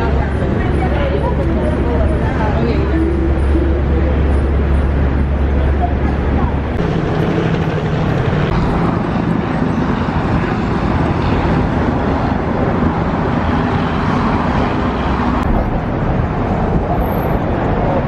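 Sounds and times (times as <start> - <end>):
road traffic noise: 0.0 - 18.0.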